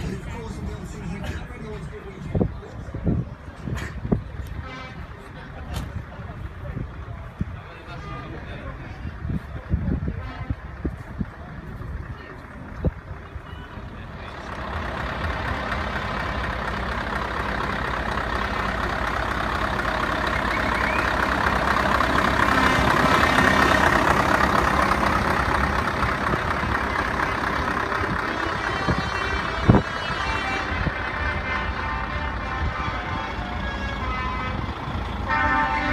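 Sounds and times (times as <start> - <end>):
diesel truck engine running: 0.0 - 35.9.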